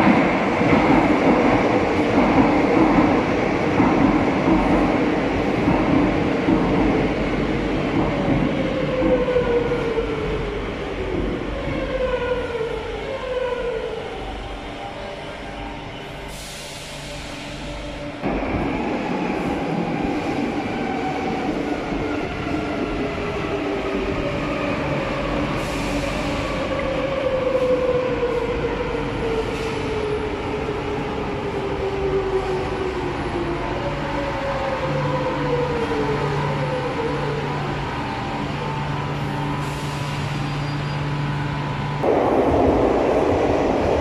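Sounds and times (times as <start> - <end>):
train wheels rumbling: 39.0 - 44.0.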